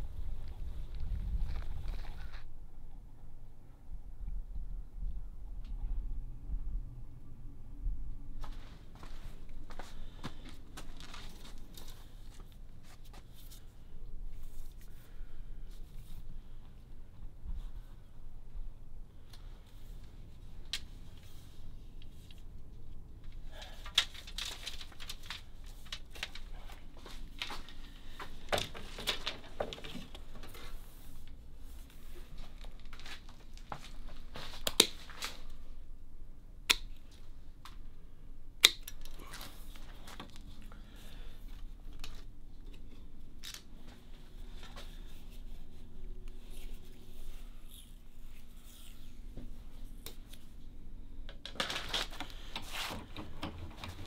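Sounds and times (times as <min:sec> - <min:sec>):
bamboo canes rustling and knocking: 0:23.2 - 0:35.6.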